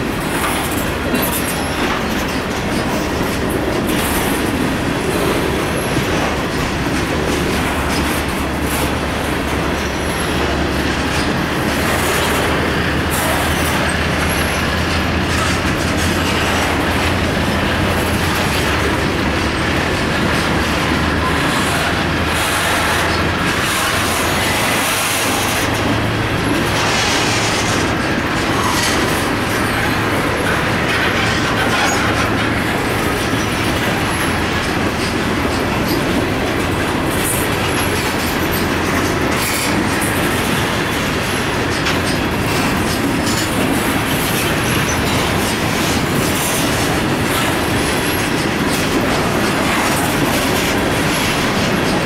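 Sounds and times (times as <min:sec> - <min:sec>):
train wheels rolling on rails: 0:00.0 - 0:52.0.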